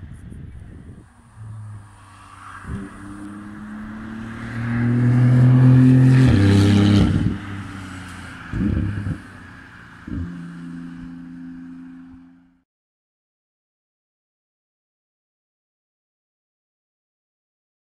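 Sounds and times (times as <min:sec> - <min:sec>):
sports car passing at speed: 0:00.7 - 0:12.6.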